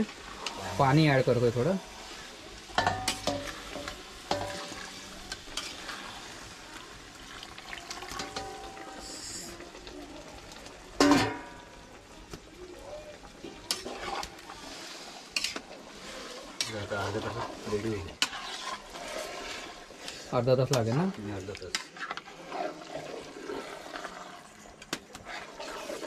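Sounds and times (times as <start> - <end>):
food sizzling and bubbling in pot: 0.0 - 26.0
spoon scraping and clinking pot: 2.8 - 6.0, 16.4 - 20.2.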